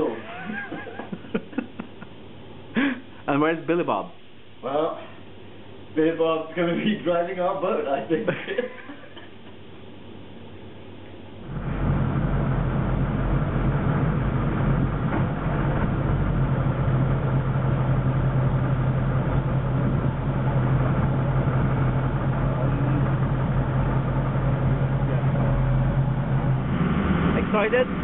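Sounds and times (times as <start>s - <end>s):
boat engine running steadily: 11.5s - 28.0s.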